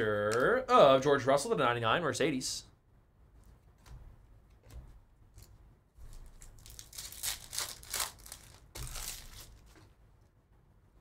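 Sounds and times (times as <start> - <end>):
foil wrapper tearing and crinkling: 6.0 - 9.8.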